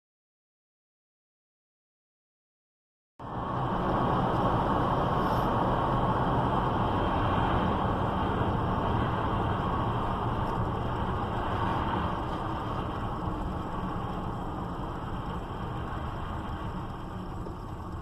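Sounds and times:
low engine hum: 3.2s - 18.0s.

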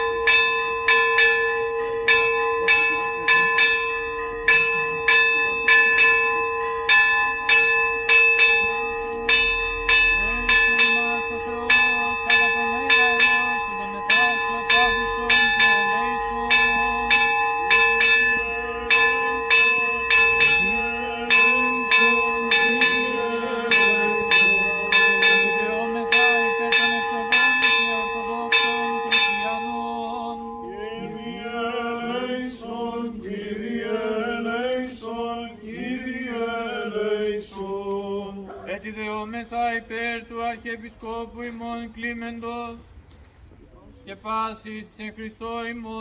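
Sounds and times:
church bells ringing: 0.0s - 34.7s
low hum from bells: 0.0s - 37.2s.

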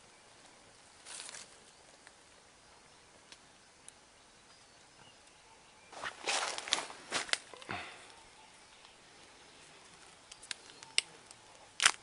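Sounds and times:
dry leaves rustling: 0.8s - 2.2s, 5.9s - 8.0s.

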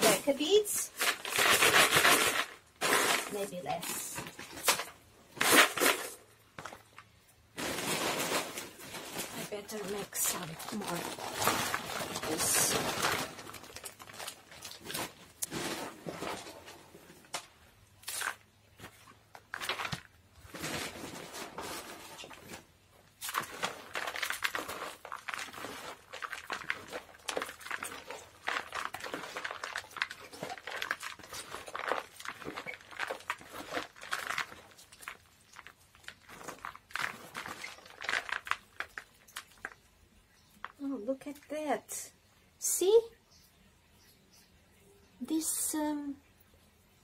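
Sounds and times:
plastic bag rustling: 0.0s - 39.8s
bark mix poured into plastic basin: 23.2s - 39.8s.

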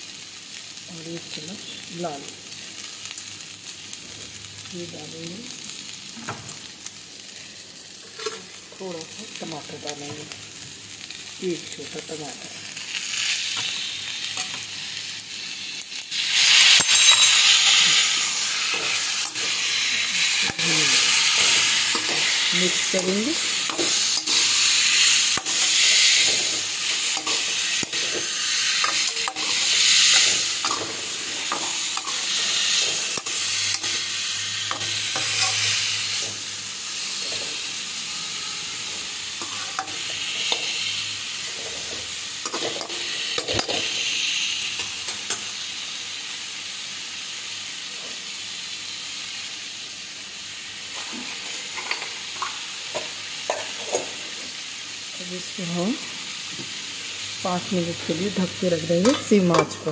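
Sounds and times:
vegetables sizzling in a pan: 0.0s - 59.9s
metal spoon scraping a pan: 16.2s - 44.0s.

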